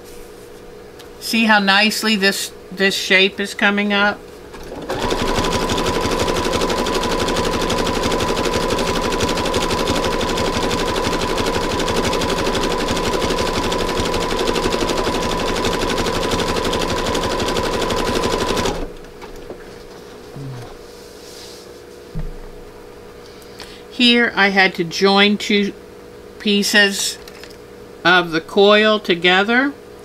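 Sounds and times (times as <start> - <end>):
sewing machine stitching: 4.5 - 19.0.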